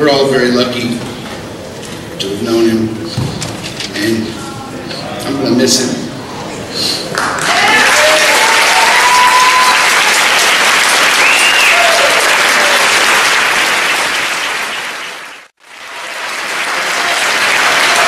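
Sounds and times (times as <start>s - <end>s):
audience applauding: 7.1s - 18.0s.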